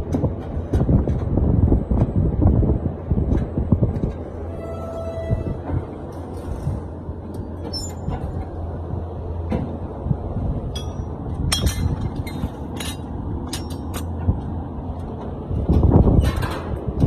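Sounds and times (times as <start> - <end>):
machine humming: 4.2 - 10.4.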